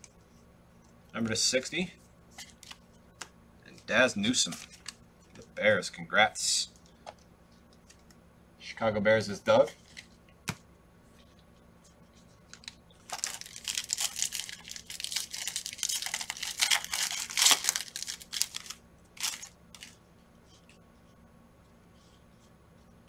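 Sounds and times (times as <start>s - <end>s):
foil wrapper rustling: 12.4s - 20.0s.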